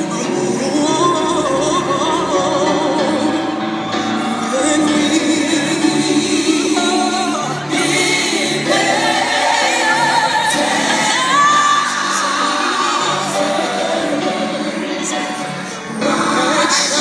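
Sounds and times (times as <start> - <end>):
person singing long notes: 0.0 - 8.8.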